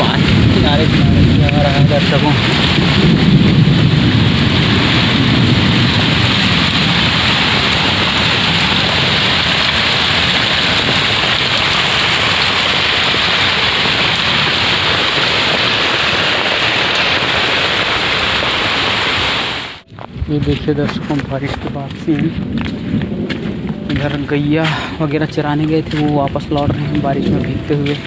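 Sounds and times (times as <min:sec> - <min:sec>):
water runoff streaming: 0:00.0 - 0:22.7
low thunder rumble: 0:00.0 - 0:28.0
rain drumming on a tarpaulin: 0:00.0 - 0:28.0.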